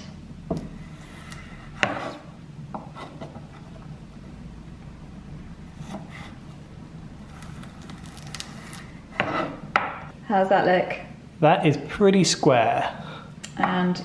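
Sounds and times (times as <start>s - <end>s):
steady low hum: 0.0s - 14.0s
knife cutting on wooden board: 0.5s - 3.7s, 5.7s - 6.6s, 7.2s - 9.9s.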